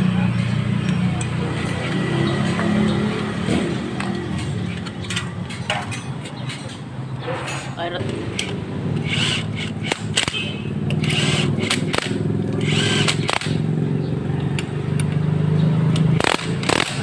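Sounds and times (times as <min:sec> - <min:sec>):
power driver motor hum: 0:08.4 - 0:13.4.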